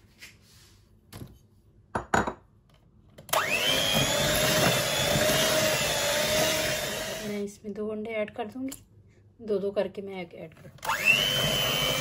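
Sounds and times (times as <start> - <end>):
electric hand mixer whining: 3.3 - 7.4, 10.8 - 12.0.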